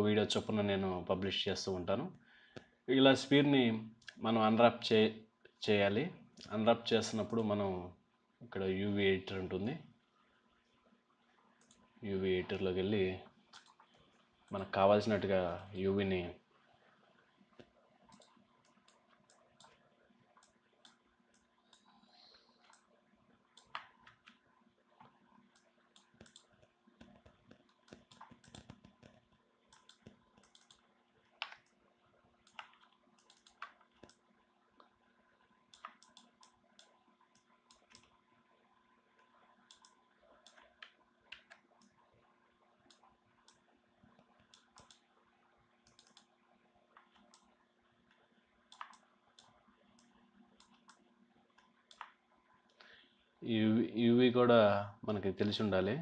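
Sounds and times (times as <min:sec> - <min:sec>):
low steady hum: 0:00.0 - 0:56.0
mouse and keyboard clicking: 0:13.5 - 0:14.6, 0:17.6 - 0:19.8, 0:23.6 - 0:24.4, 0:25.0 - 0:31.8, 0:32.4 - 0:34.2, 0:35.7 - 0:38.2, 0:39.7 - 0:42.0, 0:44.4 - 0:45.1, 0:45.8 - 0:46.3, 0:48.7 - 0:52.8.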